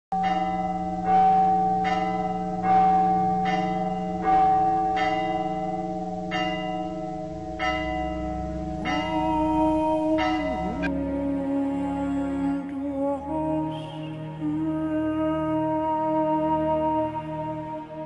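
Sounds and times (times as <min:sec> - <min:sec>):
church bells ringing: 0:00.1 - 0:12.6.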